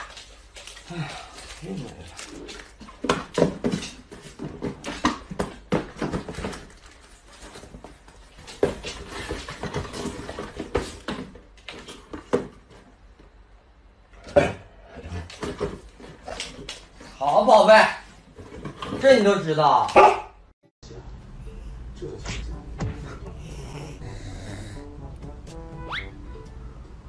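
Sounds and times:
cardboard boxes knocking and rustling: 0:02.8 - 0:12.9.

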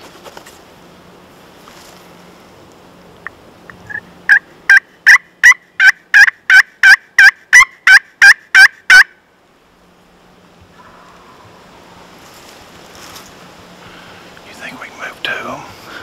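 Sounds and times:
turkey call hen yelps: 0:03.9 - 0:09.2.

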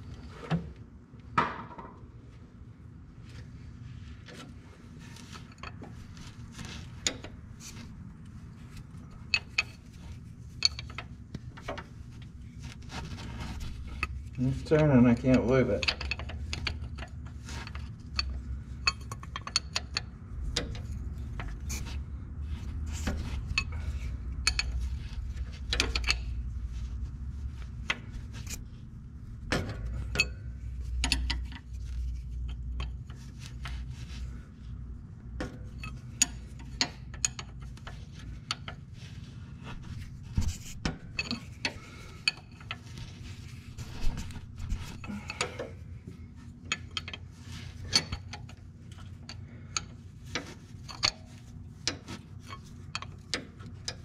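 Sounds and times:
low steady hum: 0:00.0 - 0:54.0
metal clinks taps and scrapes: 0:04.2 - 0:54.0.

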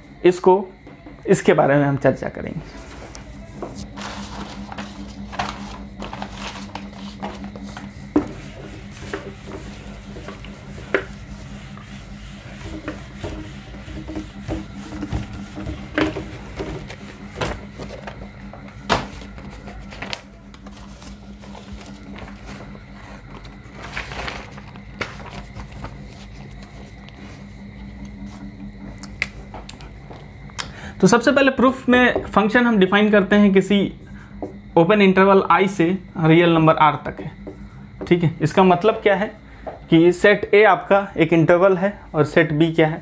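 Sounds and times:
steady low hum: 0:00.0 - 0:43.0
duster rubbing on whiteboard: 0:04.0 - 0:18.2.

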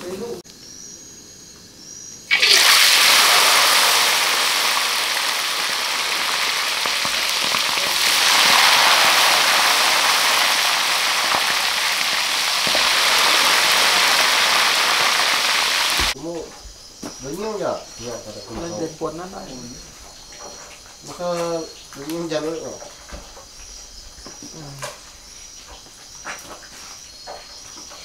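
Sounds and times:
fish sizzling in hot oil: 0:02.3 - 0:16.2.

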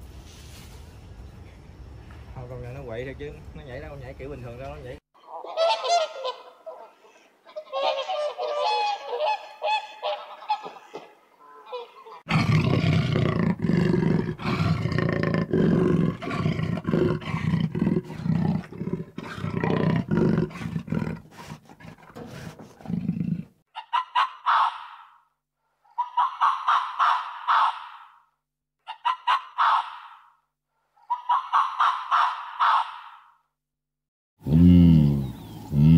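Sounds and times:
deep noisy animal call: 0:11.4 - 0:23.5.

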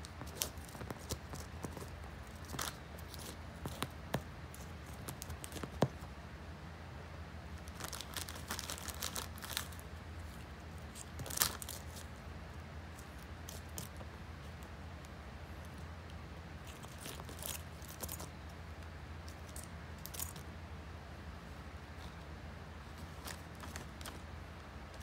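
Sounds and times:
plastic bag and wrappers crinkling: 0:07.6 - 0:12.1.

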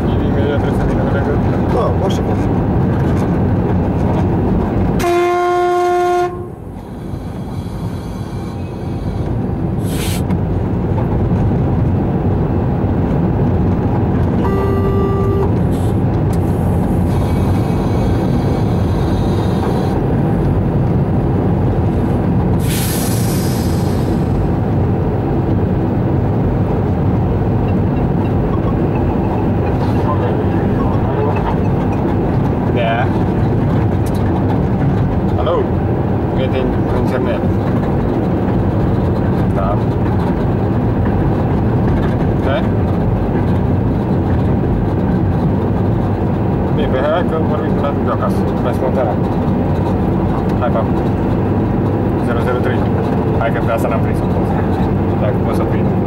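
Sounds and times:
locomotive wheels rumbling: 0:00.0 - 0:56.0
locomotive horn blast: 0:05.0 - 0:06.7, 0:14.4 - 0:16.0, 0:17.1 - 0:20.0
brief hiss: 0:09.8 - 0:10.3.

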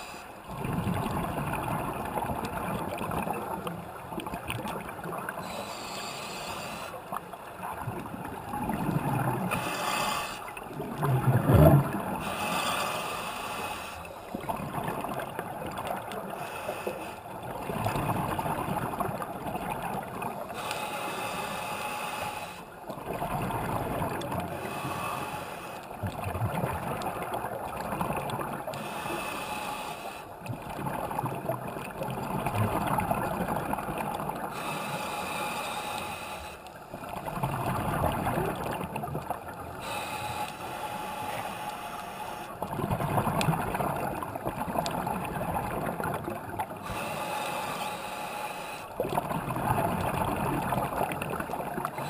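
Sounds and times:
air bubbles gurgling underwater: 0:00.5 - 0:05.4, 0:07.5 - 0:09.6, 0:10.6 - 0:12.3, 0:30.4 - 0:34.6, 0:36.9 - 0:39.9, 0:42.6 - 0:46.9, 0:49.0 - 0:52.0
breathing through scuba regulator: 0:05.4 - 0:07.2, 0:09.4 - 0:10.6, 0:11.8 - 0:14.4, 0:16.2 - 0:17.4, 0:20.4 - 0:22.8, 0:24.5 - 0:26.0, 0:28.7 - 0:30.4, 0:34.4 - 0:36.9, 0:39.7 - 0:42.6, 0:46.8 - 0:49.1.

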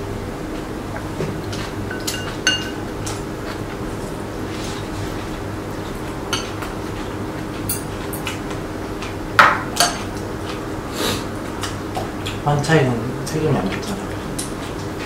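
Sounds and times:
steady low hum: 0:00.0 - 0:15.0
utensils clinking on bowls: 0:01.9 - 0:02.8, 0:07.7 - 0:08.4, 0:09.4 - 0:10.2.

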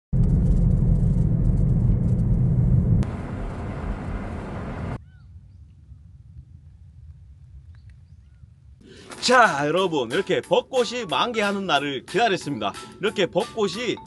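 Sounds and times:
wind rumbling on microphone: 0:00.1 - 0:08.8
faint bird chirps: 0:05.0 - 0:06.0.

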